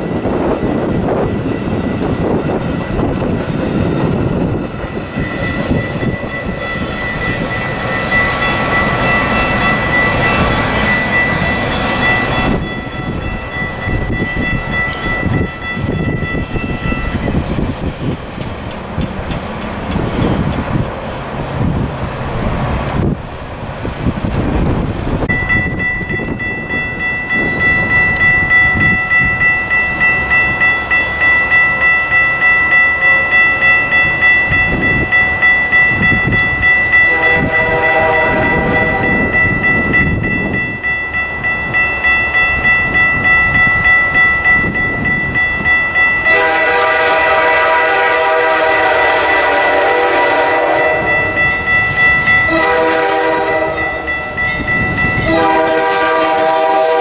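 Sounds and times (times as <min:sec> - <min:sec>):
bell ringing steadily: 0:00.0 - 0:17.8, 0:25.2 - 0:47.1, 0:50.6 - 0:56.1
train rumble: 0:00.0 - 0:57.0
diesel locomotive horn: 0:37.0 - 0:39.4, 0:46.2 - 0:51.5, 0:52.4 - 0:54.2, 0:55.2 - 0:57.0.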